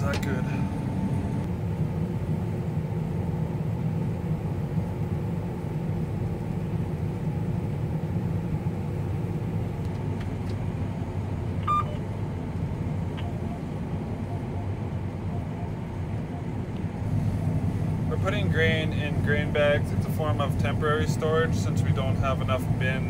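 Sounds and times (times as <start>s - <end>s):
combine engine and machinery running: 0.0s - 23.0s
short electronic beep: 11.6s - 12.0s.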